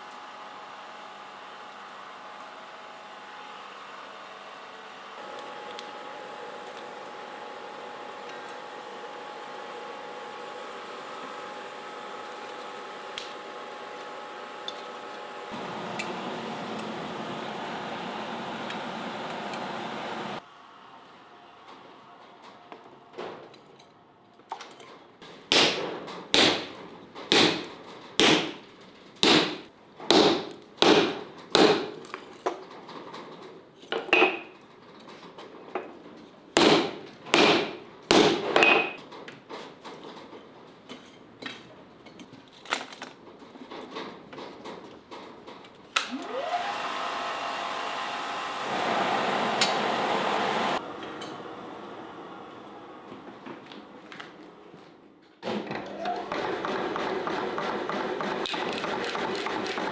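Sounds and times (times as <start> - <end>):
forge blower rushing air: 0.0 - 21.0, 46.0 - 54.0
hammer striking steel on anvil: 25.5 - 26.7, 27.3 - 28.6, 36.6 - 39.0.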